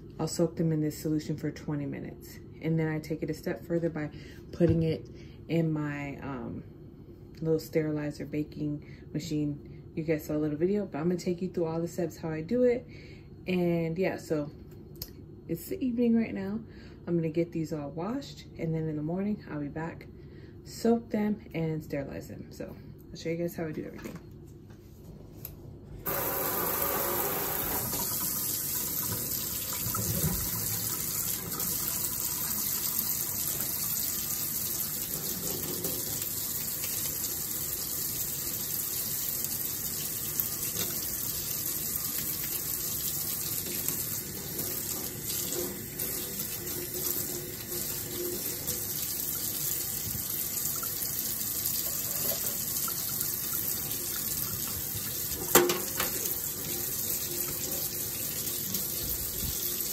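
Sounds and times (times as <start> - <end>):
tap water running into sink: 26.1 - 59.9.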